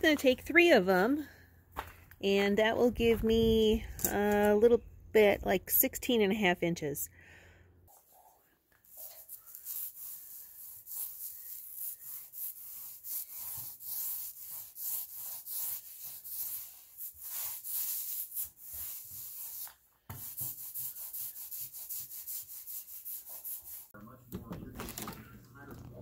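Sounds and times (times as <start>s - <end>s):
paint roller rasping on wood: 8.9s - 23.9s.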